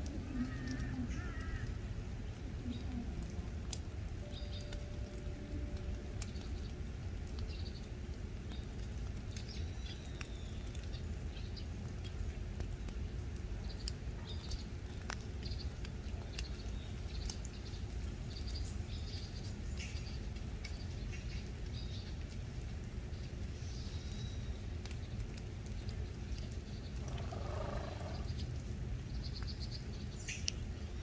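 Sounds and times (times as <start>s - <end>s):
faint clicks: 0.0s - 1.8s, 24.1s - 28.6s
small birds chirping: 0.0s - 31.0s
steady low rumble: 0.0s - 31.0s.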